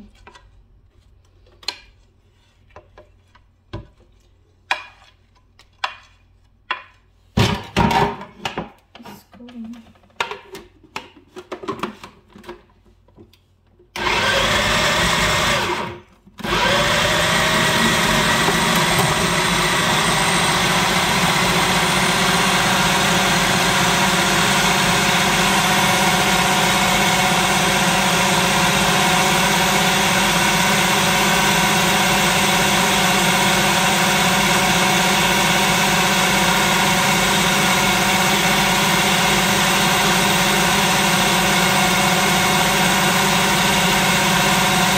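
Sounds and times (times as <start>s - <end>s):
food processor motor running: 14.0s - 44.9s.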